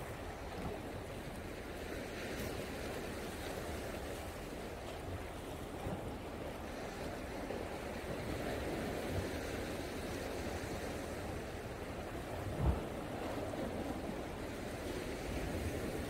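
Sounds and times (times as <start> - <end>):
sea waves washing against rocks: 0.0 - 16.0.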